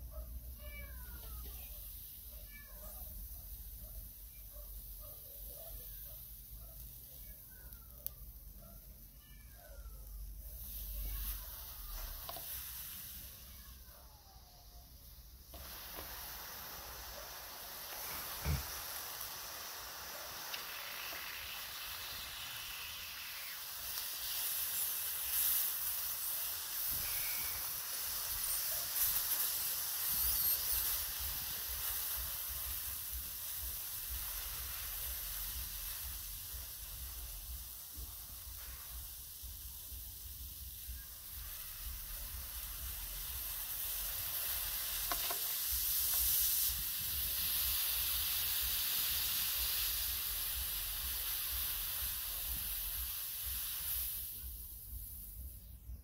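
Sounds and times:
hot blade hissing and sizzling: 0:00.0 - 0:56.0.

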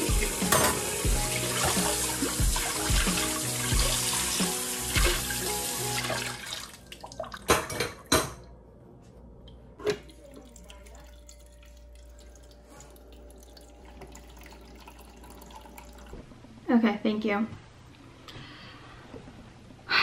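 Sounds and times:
tap running water: 0:00.0 - 0:08.4, 0:09.8 - 0:16.3
dishes knocking: 0:00.4 - 0:00.9
faint steady hum: 0:06.9 - 0:20.0.

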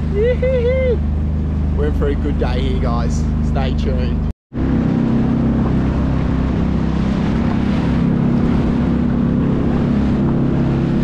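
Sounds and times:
jet ski engine running: 0:00.0 - 0:11.0
rush of wind and water: 0:04.5 - 0:11.0.

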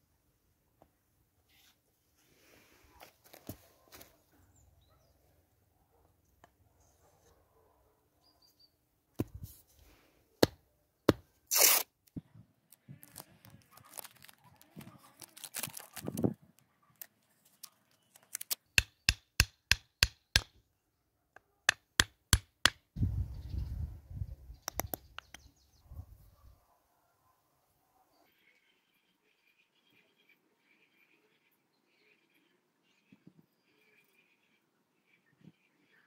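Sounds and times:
masking tape ripping: 0:11.5 - 0:12.0, 0:13.0 - 0:16.2, 0:18.1 - 0:18.6
hammer tapping wooden wedge: 0:18.8 - 0:20.6, 0:21.7 - 0:22.8.

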